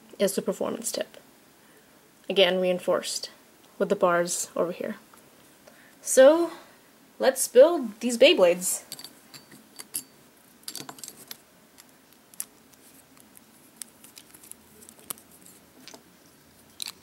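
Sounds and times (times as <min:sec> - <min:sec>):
toy parts clicking together: 0:16.8 - 0:17.0.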